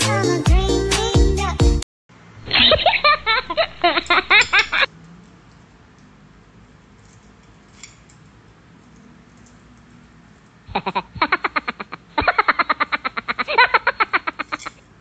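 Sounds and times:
high-pitched giggling: 0:10.7 - 0:14.8.

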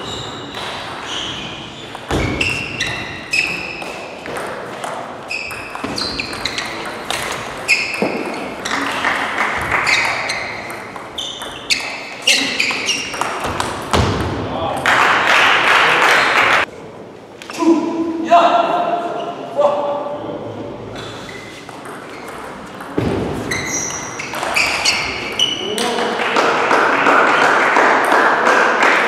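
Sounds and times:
table tennis ball pinging: 0:01.9 - 0:14.3, 0:21.6 - 0:25.6.

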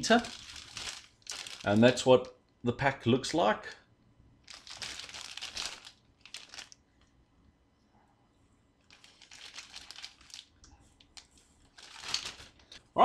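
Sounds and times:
plastic bag crinkling: 0:00.0 - 0:02.3, 0:04.5 - 0:06.8, 0:08.8 - 0:12.8.

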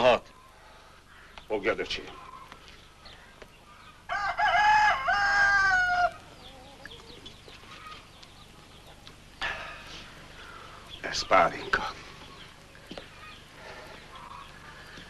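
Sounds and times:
rooster crowing: 0:04.1 - 0:07.0.

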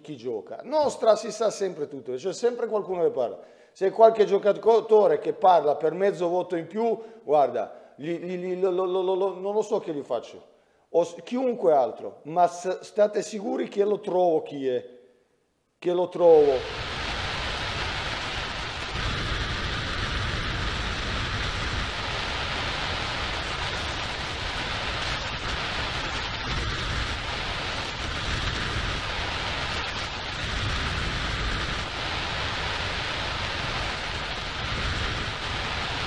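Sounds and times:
steady rushing hiss: 0:16.3 - 0:36.0.

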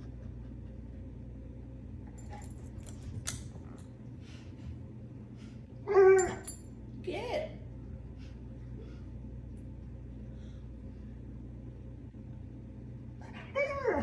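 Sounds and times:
dog whining: 0:05.9 - 0:06.4, 0:13.2 - 0:14.0.

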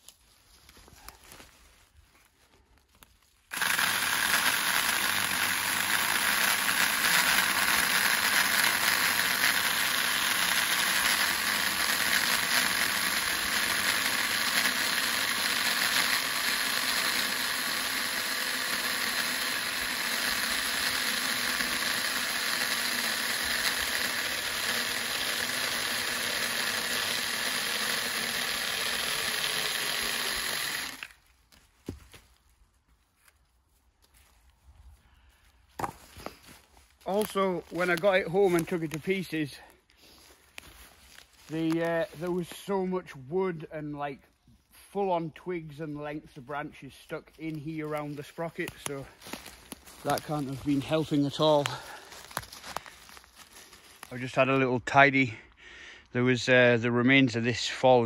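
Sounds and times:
mini chainsaw cutting log: 0:03.5 - 0:32.1, 0:35.8 - 0:42.8, 0:47.4 - 0:54.5.

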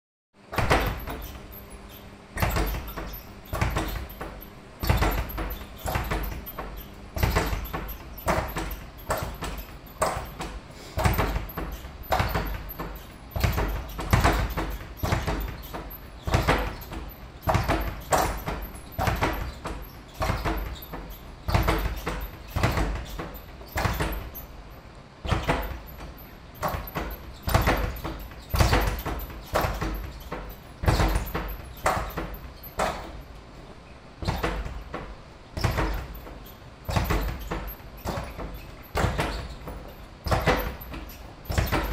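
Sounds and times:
speed bag punches and rattle: 0:00.4 - 0:41.9.

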